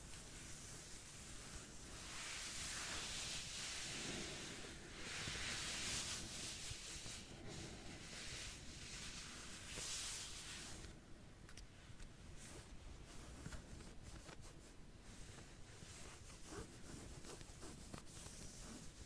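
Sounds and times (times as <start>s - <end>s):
nails scratching a back: 15.8s - 19.0s.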